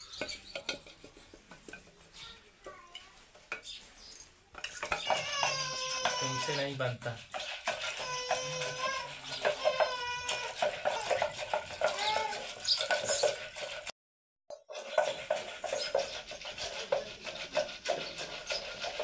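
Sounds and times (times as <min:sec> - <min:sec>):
high drawn-out cry: 0:05.0 - 0:06.6, 0:08.0 - 0:11.2
wooden stick knocking against pot: 0:07.3 - 0:13.4.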